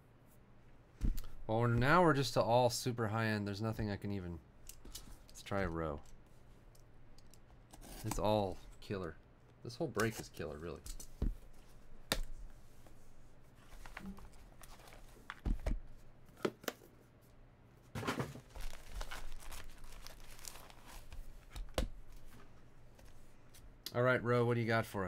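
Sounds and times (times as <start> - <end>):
packaging rustling and crinkling: 18.3 - 22.4.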